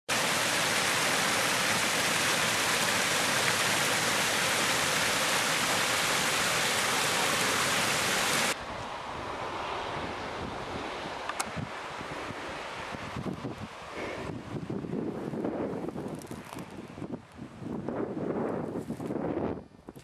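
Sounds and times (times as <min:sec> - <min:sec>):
small waterfall splashing: 0:00.0 - 0:08.6
quiet water rushing: 0:00.1 - 0:14.8.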